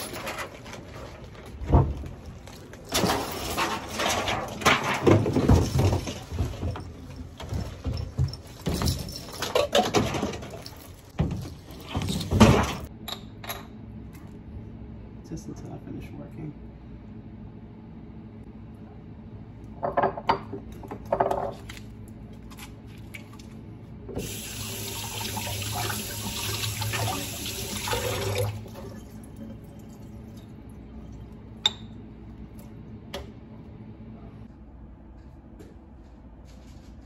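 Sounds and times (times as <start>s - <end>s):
water tap running: 24.2s - 29.3s.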